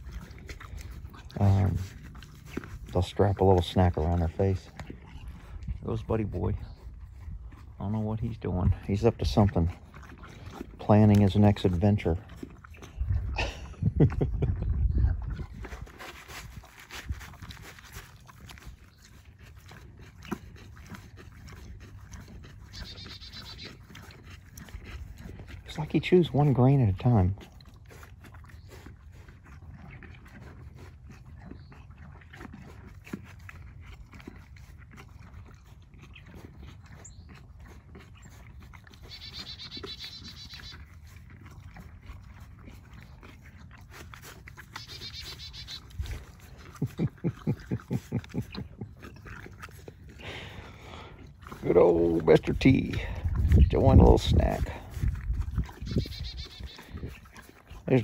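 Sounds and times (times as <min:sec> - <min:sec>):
horse chewing feed: 0:00.0 - 0:58.0
small bird trilling: 0:22.7 - 0:23.7, 0:39.1 - 0:40.8, 0:44.8 - 0:45.9, 0:55.9 - 0:56.8.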